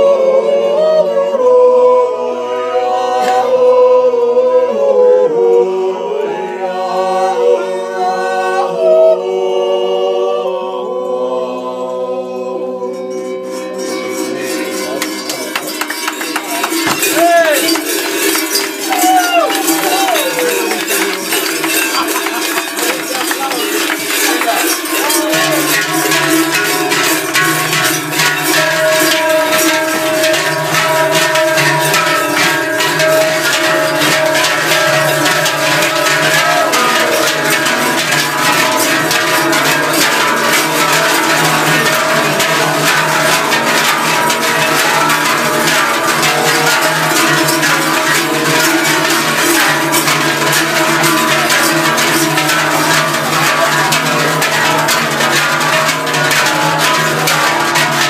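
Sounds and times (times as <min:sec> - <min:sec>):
men yodeling in harmony: 0:00.0 - 0:15.7, 0:16.6 - 0:58.0
crotal bells jangling: 0:13.2 - 0:58.0
cowbells jangling: 0:13.5 - 0:58.0.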